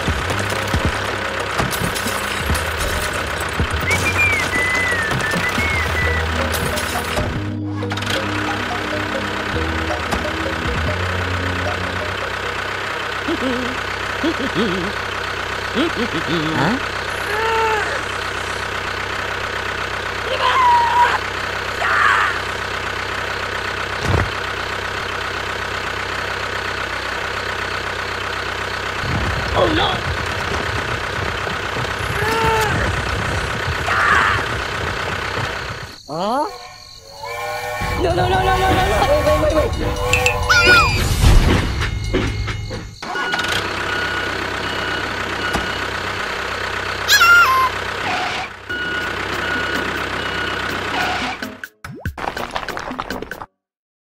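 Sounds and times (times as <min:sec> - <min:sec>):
tractor engine idling: 0:00.0 - 0:51.1
reversing alarm beeping: 0:03.8 - 0:06.5, 0:35.8 - 0:46.3, 0:48.7 - 0:51.0
squeaky falling cartoon call: 0:03.9 - 0:06.3, 0:40.2 - 0:41.2, 0:47.1 - 0:48.4
squeaky voice: 0:36.0 - 0:36.8, 0:40.2 - 0:41.1, 0:47.1 - 0:47.8.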